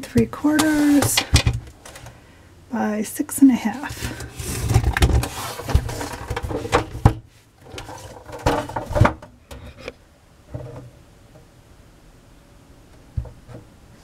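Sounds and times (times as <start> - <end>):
faint shuffling: 0.0 - 1.3
radio cabinet rubbing and scraping: 0.0 - 2.1, 3.5 - 10.9.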